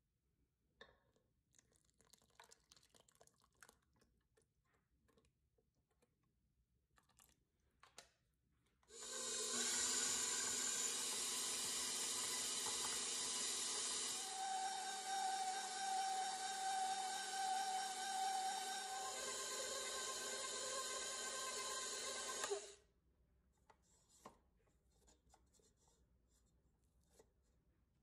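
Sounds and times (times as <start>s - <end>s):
stand mixer motor running: 9.0s - 22.7s.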